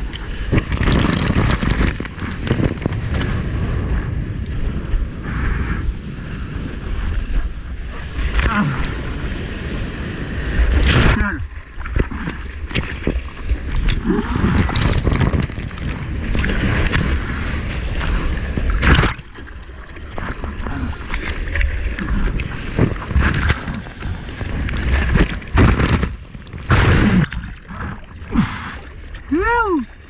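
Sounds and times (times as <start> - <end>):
water buffeting microphone: 0.0 - 30.0
water splashing: 10.6 - 30.0.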